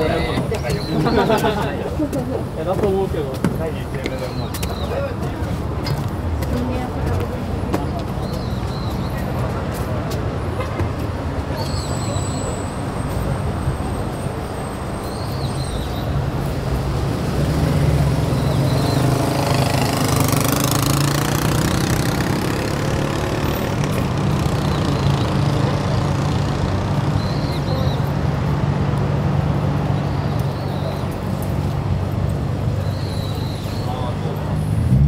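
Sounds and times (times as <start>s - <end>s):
vehicle passing by: 16.5s - 27.3s, 33.4s - 35.0s.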